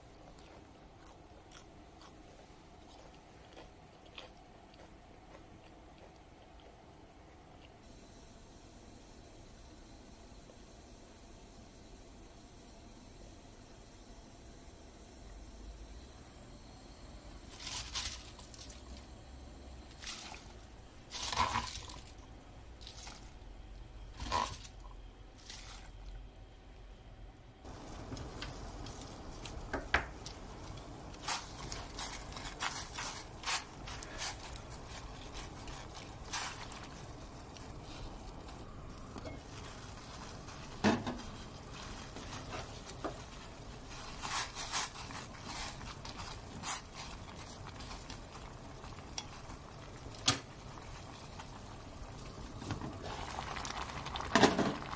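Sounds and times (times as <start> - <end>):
chopsticks stirring in water: 30.2 - 51.9
water bubbling in a pot: 47.2 - 54.9.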